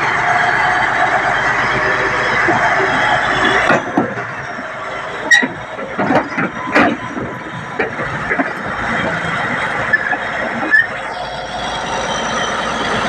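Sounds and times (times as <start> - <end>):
bulldozer diesel engine running: 0.0 - 13.0
high squeal of track on steel: 0.0 - 13.0
metallic clanks of tracks: 1.7 - 11.1.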